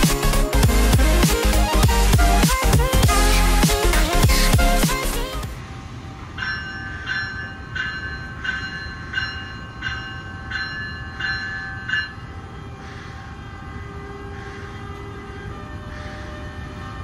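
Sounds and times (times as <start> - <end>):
locomotive bell ringing: 6.1 - 12.8.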